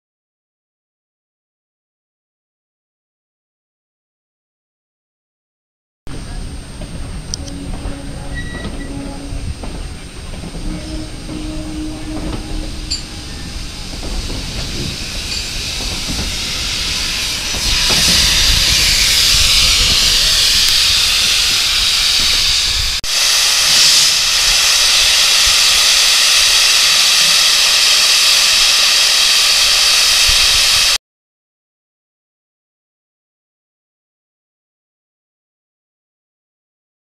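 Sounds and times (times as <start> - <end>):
steam locomotive blowing off steam: 6.1 - 31.0
train coaches rumbling on track: 6.1 - 31.0.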